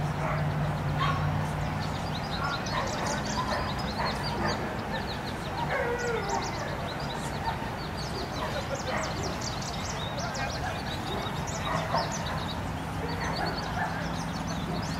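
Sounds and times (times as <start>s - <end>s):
mid-pitched bird calls: 0.0s - 14.9s.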